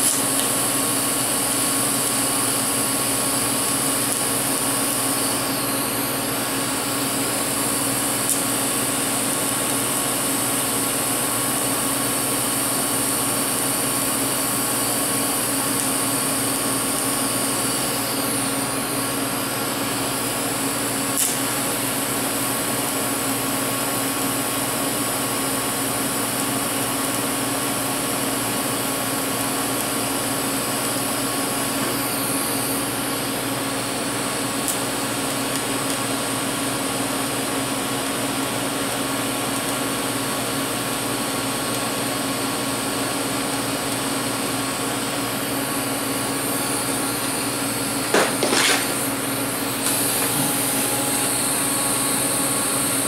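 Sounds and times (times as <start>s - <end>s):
steady hum: 0.0s - 23.7s, 42.5s - 53.0s
welding arc hissing: 0.0s - 53.0s.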